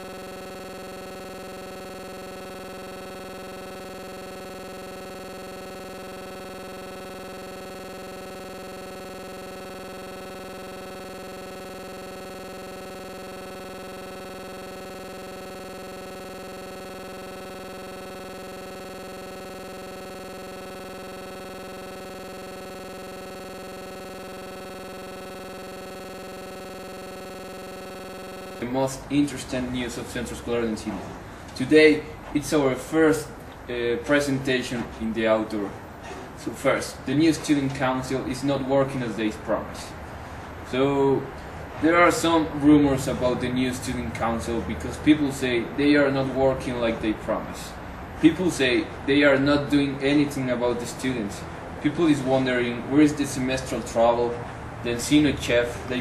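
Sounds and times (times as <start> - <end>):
steady electronic drone: 0.0 - 29.1.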